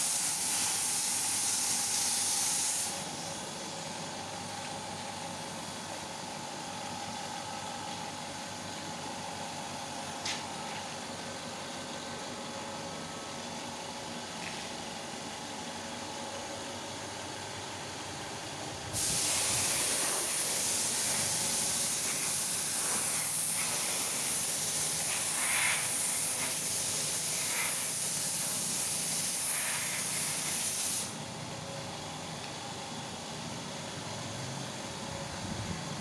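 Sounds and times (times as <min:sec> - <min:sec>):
paint spray gun hissing: 0:00.0 - 0:03.6, 0:18.9 - 0:31.2.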